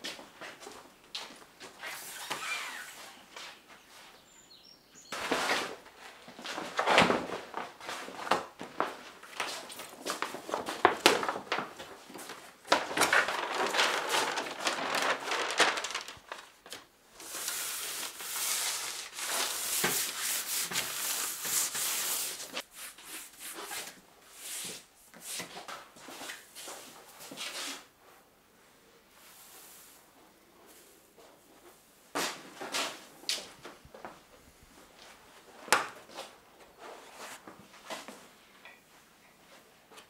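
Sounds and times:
plastic film and paper crackling: 9.7s - 22.6s.

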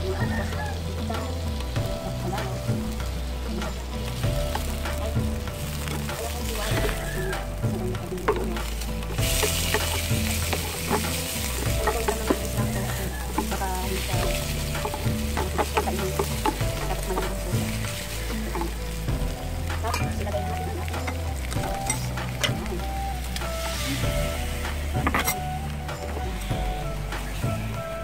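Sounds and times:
food sizzling in a pan: 0.0s - 28.0s
clicks and scrapes of stirring: 5.8s - 19.2s.

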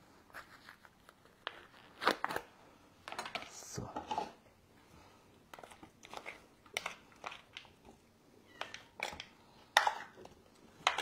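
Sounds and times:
cats eating: 5.0s - 11.0s.

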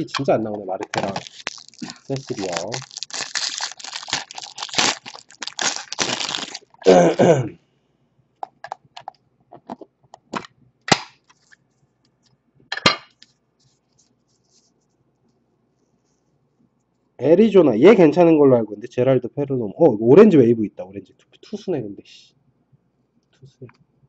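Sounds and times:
foil wrapper crinkling: 0.0s - 6.9s.

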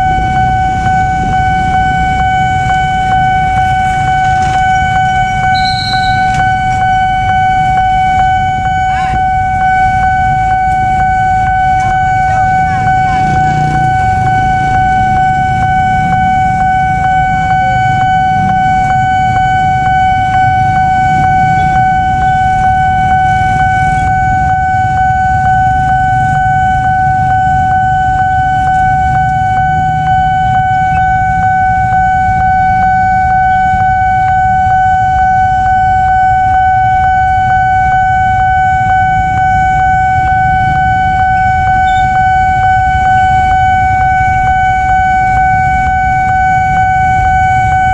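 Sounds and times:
idling motorcycles: 0.0s - 34.9s
level-crossing warning alarm: 0.0s - 47.9s
traffic rumble: 0.0s - 47.9s.

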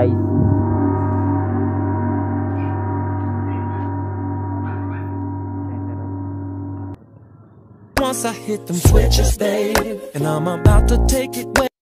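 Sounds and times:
gong-like ringing tone: 0.0s - 7.0s.

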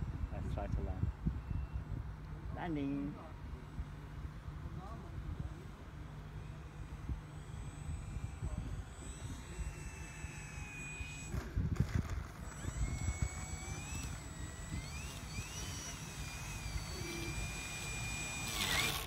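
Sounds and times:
wind rumbling on microphone: 0.0s - 2.6s, 6.9s - 17.0s
model airplane motor whining: 0.0s - 19.0s.

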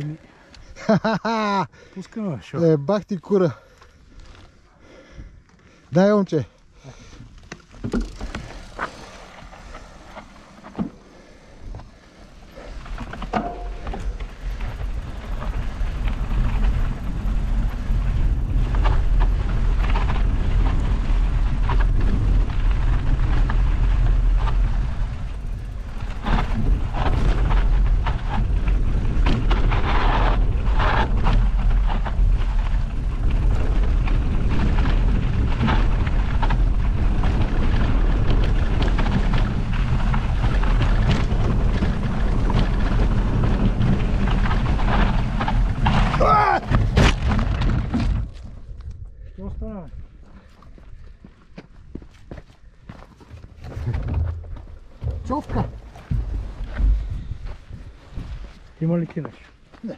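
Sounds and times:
wind rumbling on microphone: 6.8s - 58.8s
bike rattling and knocking: 7.0s - 48.8s, 52.9s - 58.6s
tyres crunching over stones: 7.1s - 11.1s, 11.9s - 49.0s, 49.9s - 59.9s.

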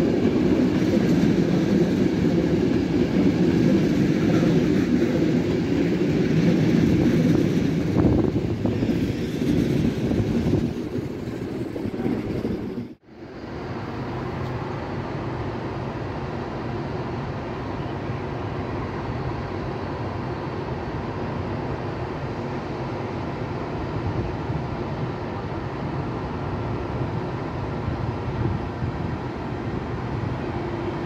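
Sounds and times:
electric locomotive humming: 0.0s - 31.0s.

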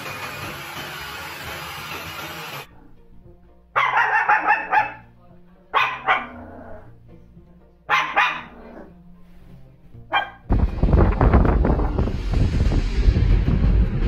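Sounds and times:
faint background music: 2.6s - 14.0s
small dog barking: 3.8s - 5.1s, 5.7s - 6.6s, 7.9s - 8.9s, 10.1s - 10.5s.

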